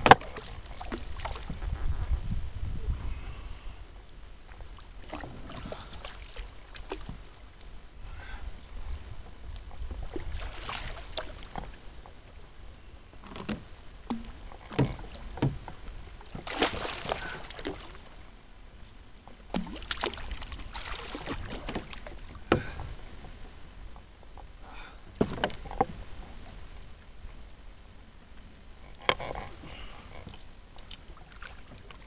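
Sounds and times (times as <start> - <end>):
steady low rumble: 0.0 - 13.1
fish splashing at the surface: 10.2 - 11.5, 16.3 - 18.1, 19.5 - 22.2.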